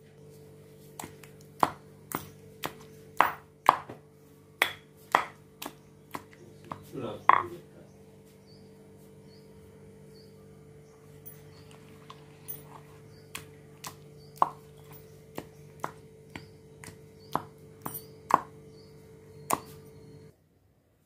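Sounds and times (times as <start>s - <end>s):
steady low hum: 0.0s - 20.4s
stone pestle knocking in mortar: 1.0s - 4.0s, 4.6s - 7.6s, 13.2s - 18.6s, 19.5s - 19.8s.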